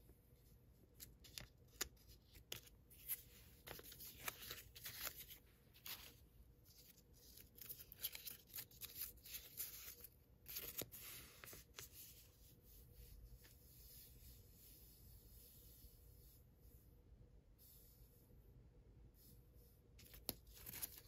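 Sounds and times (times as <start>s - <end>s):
paper tape crinkling and peeling: 1.0s - 11.9s, 20.0s - 21.0s.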